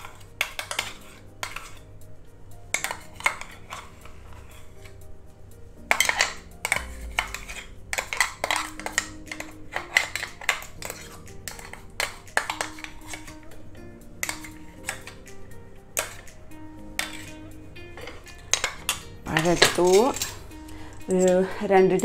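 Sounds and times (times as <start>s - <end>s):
metal spoon scraping steel jar: 0.0s - 1.9s, 2.7s - 4.8s, 5.9s - 13.4s, 17.0s - 17.4s, 18.1s - 20.4s.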